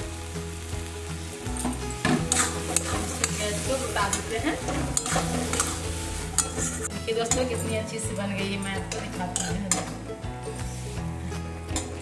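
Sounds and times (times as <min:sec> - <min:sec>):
soft sizzle: 0:00.0 - 0:12.0
metal spatula scraping pan: 0:02.2 - 0:07.6.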